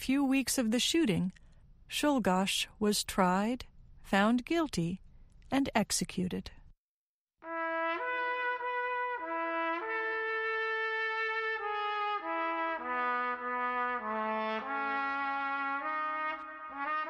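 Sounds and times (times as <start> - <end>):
slow brass melody: 7.4 - 17.0.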